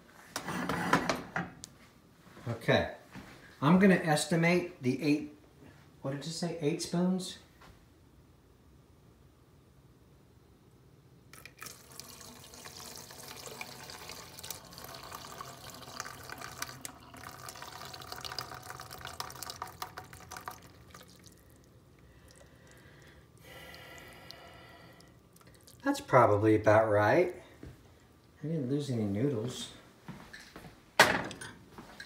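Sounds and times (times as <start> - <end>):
hot water pouring into sink: 11.4 - 21.7.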